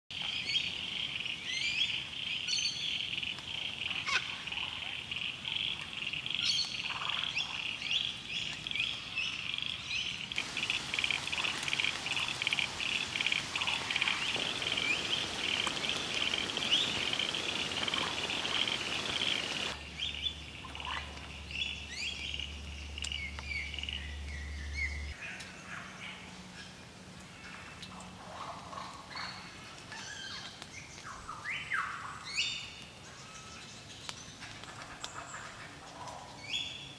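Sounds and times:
lyrebird song: 0.1 - 25.2
frog chorus: 9.3 - 19.8
falling rain: 10.3 - 19.8.

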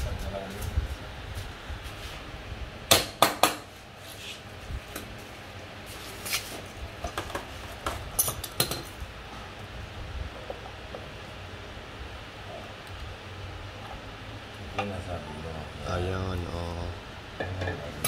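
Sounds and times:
metal tools and bolts clinking: 8.2 - 9.0.

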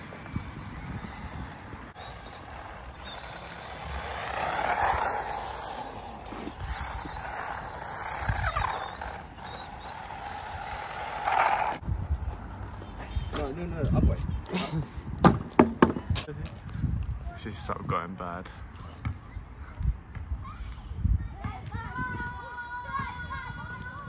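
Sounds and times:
electric rc truck motor whining: 0.0 - 11.8.

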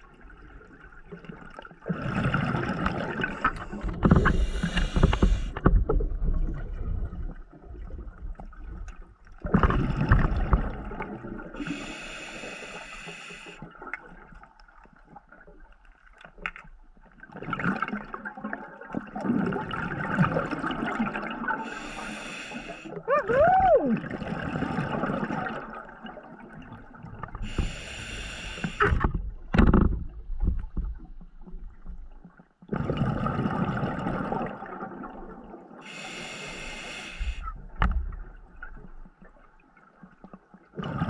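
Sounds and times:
exhaled bubbles bubbling: 0.0 - 11.8, 17.3 - 21.9, 23.0 - 27.5, 32.7 - 35.8
diver breathing through regulator: 3.2 - 5.6, 11.6 - 13.6, 21.6 - 22.9, 27.4 - 29.0, 35.8 - 37.6.

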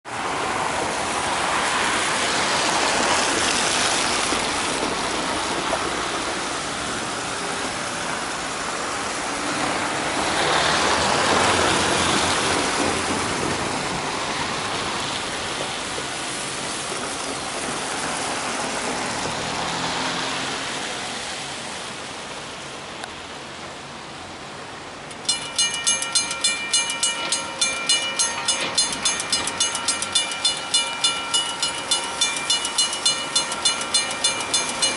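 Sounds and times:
car tyres hissing on wet road: 0.1 - 25.1
level crossing bell ringing: 25.1 - 34.9.

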